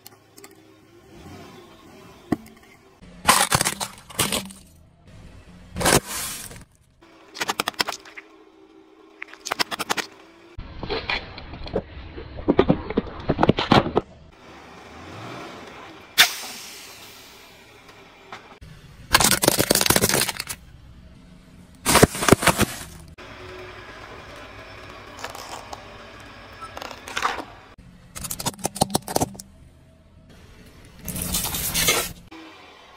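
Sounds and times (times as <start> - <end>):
tyre crushing plastic: 3.2 - 4.7, 19.1 - 20.6, 21.9 - 23.1.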